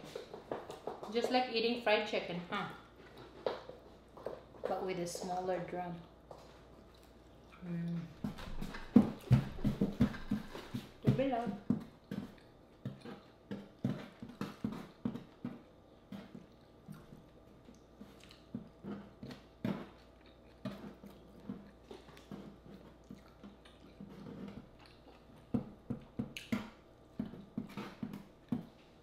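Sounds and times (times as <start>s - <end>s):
chewing and lip smacking: 6.6s - 8.9s, 11.8s - 27.9s.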